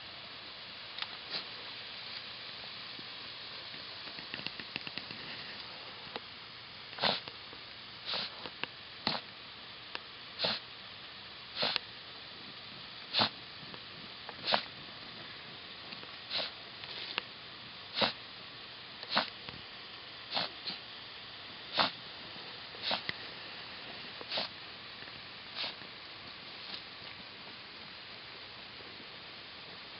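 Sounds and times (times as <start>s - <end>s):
dog sniffing hard: 7.0s - 7.3s, 8.0s - 8.4s, 10.4s - 10.6s, 11.6s - 11.8s, 13.1s - 13.4s, 14.4s - 14.7s, 16.3s - 16.6s, 17.9s - 18.2s, 19.1s - 19.3s, 20.3s - 20.8s, 21.7s - 22.0s, 22.8s - 23.1s, 24.3s - 24.6s, 25.5s - 25.8s.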